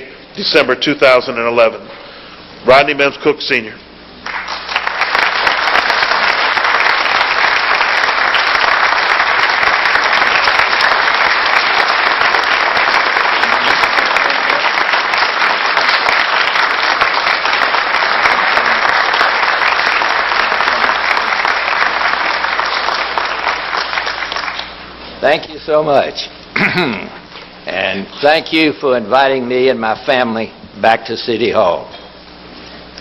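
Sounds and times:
audience applauding: 4.2s - 24.9s.

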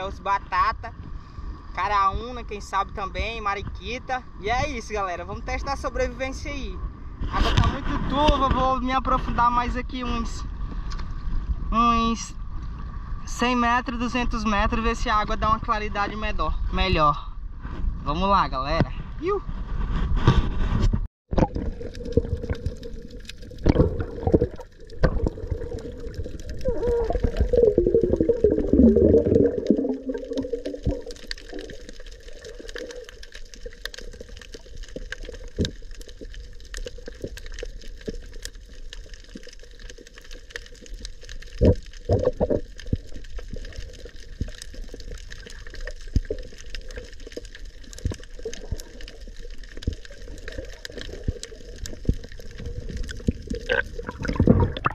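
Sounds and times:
sharp underwater clicks: 21.3s - 54.9s
muffled underwater noise: 25.1s - 31.8s.

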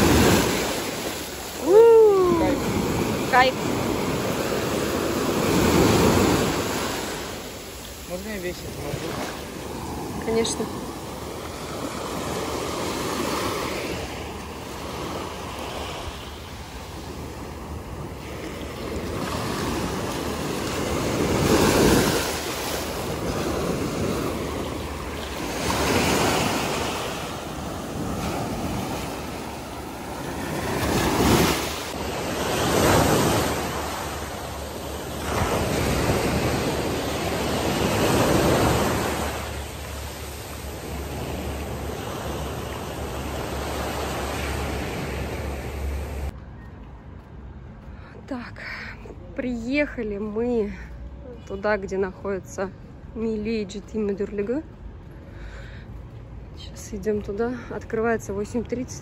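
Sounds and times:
small waves breaking on beach: 0.0s - 46.3s.

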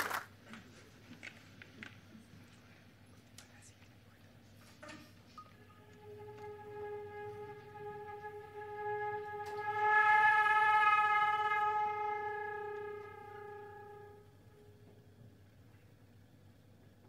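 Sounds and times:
flute long note: 4.8s - 15.1s.

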